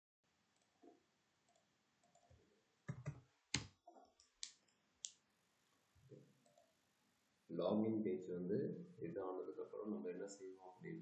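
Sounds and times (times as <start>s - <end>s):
computer mouse clicks: 1.5s - 5.2s.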